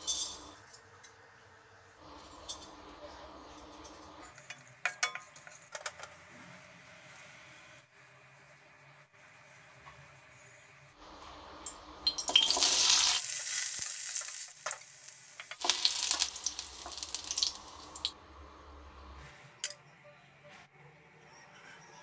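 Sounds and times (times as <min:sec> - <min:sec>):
garlic and onion sizzling: 0:11.0 - 0:19.2.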